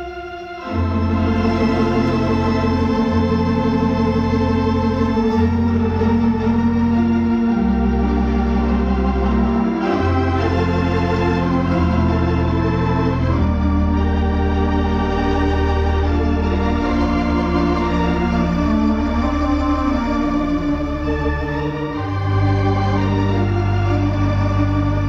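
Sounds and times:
pipe organ playing held chords: 0:00.0 - 0:25.0.

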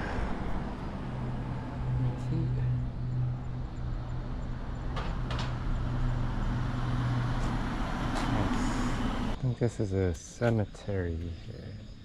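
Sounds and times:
low motor hum: 0:00.0 - 0:09.4.

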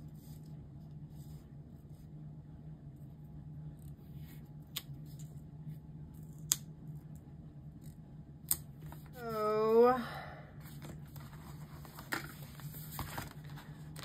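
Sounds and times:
paper rustling: 0:10.6 - 0:14.0.

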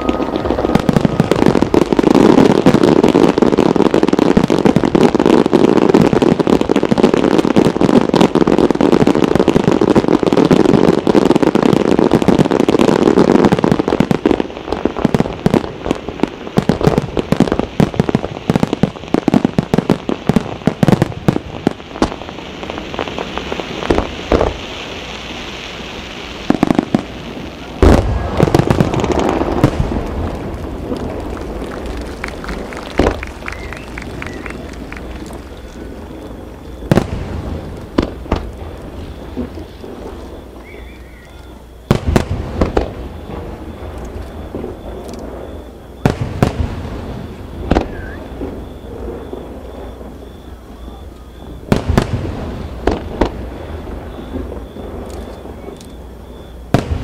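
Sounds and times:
loud low boom: 0:00.0 - 0:03.1
fireworks bangs: 0:00.0 - 0:57.0
fireworks crackling and popping: 0:00.0 - 0:57.0.

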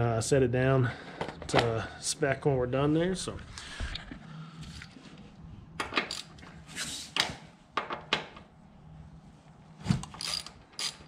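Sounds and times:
faint steady hum: 0:00.0 - 0:11.0
ratchet metallic clicks: 0:10.2 - 0:11.0.

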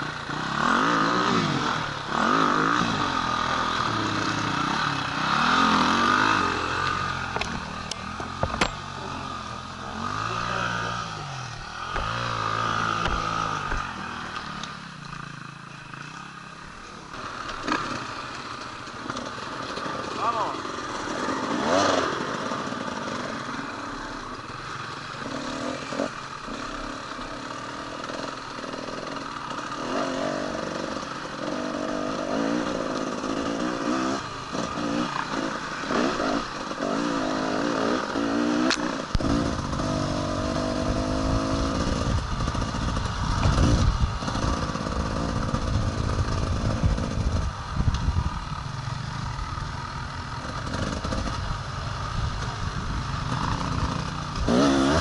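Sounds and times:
motorcycle engine revving: 0:00.0 - 0:55.0
sharp click: 0:38.6 - 0:39.3.

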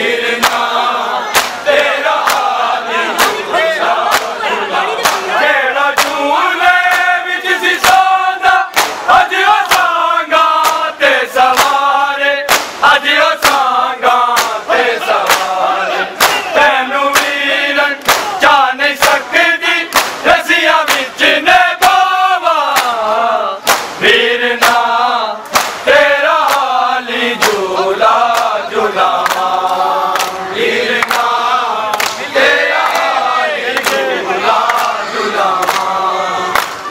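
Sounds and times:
men chanting a lament: 0:00.0 - 0:36.9
hands slapping chests: 0:00.4 - 0:00.7, 0:01.3 - 0:02.5, 0:03.2 - 0:03.4, 0:04.0 - 0:04.4, 0:05.0 - 0:05.3, 0:05.9 - 0:06.2, 0:06.9 - 0:07.1, 0:08.7 - 0:11.8, 0:12.5 - 0:13.7, 0:14.3 - 0:15.6, 0:16.2 - 0:16.5, 0:17.1 - 0:17.4, 0:18.0 - 0:19.3, 0:19.9 - 0:21.1, 0:22.7 - 0:23.0, 0:23.6 - 0:24.0, 0:24.6 - 0:26.8, 0:27.4 - 0:30.4, 0:31.0 - 0:35.0, 0:35.6 - 0:35.9, 0:36.6 - 0:36.9.

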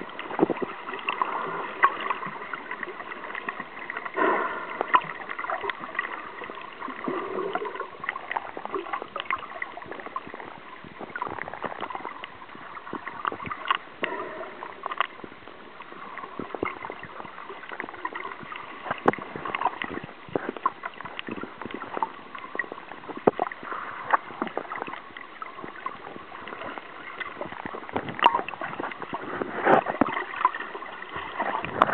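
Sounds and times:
muffled water gurgling and sloshing: 0:00.0 - 0:31.9
small clicks and crackles: 0:00.0 - 0:31.9.

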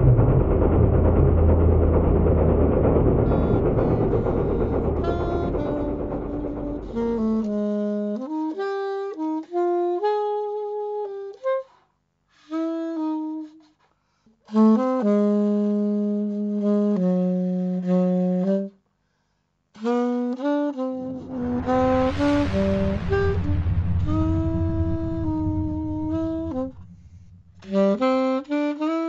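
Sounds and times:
solo saxophone melody: 0:05.6 - 0:11.7, 0:12.4 - 0:13.8, 0:14.5 - 0:18.8, 0:19.8 - 0:21.0, 0:27.7 - 0:29.0.

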